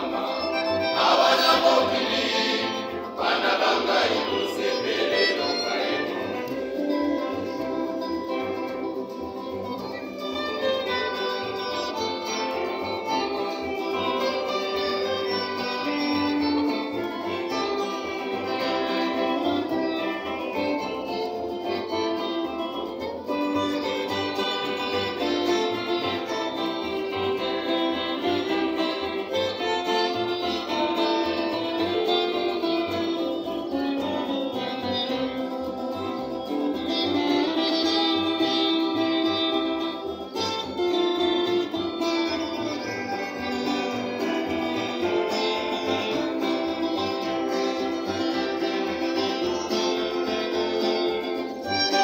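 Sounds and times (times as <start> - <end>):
men's choir singing: 0.0 - 8.8
acoustic guitars: 0.0 - 52.0
double bass: 0.0 - 52.0.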